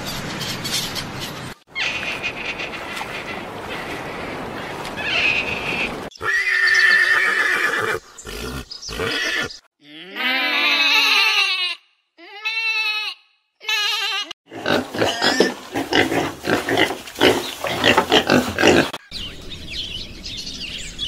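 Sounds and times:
horse whinnying: 6.2s - 9.6s.

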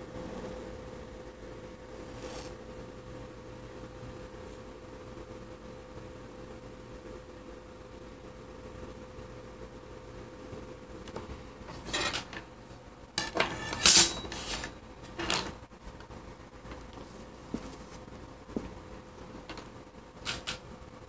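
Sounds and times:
metal ruler clattering and scraping: 11.8s - 12.4s, 13.2s - 15.6s.

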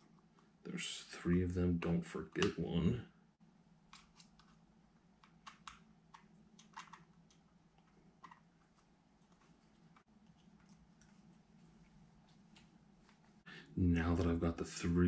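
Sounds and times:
parts being handled: 3.8s - 13.4s.

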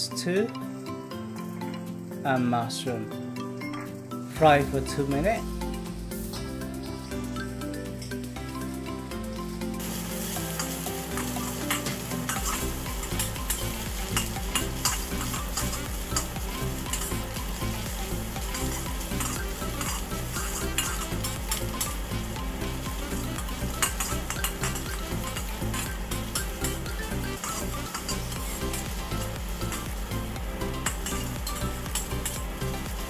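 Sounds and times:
vegetables sizzling in oil: 0.8s - 2.8s, 3.7s - 33.0s
metal spatula scraping pan: 10.2s - 17.1s, 18.5s - 21.9s, 23.0s - 28.8s.

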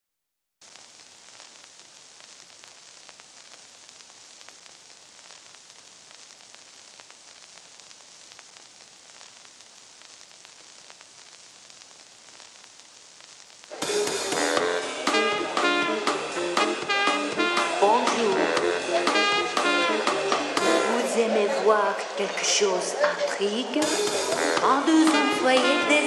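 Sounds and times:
clicks and crackles: 0.6s - 13.8s
film soundtrack surface hiss: 0.6s - 26.0s.

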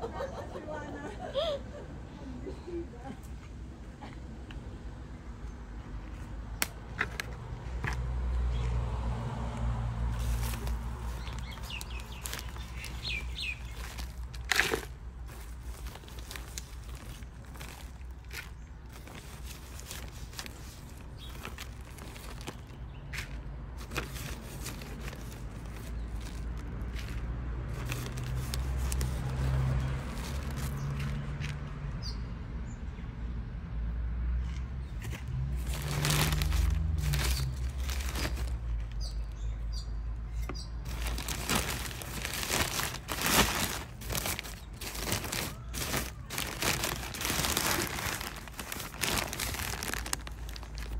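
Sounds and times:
plastic sacks rustling: 10.0s - 31.6s, 35.2s - 39.4s, 40.8s - 50.9s
bird chirps: 11.2s - 13.8s.

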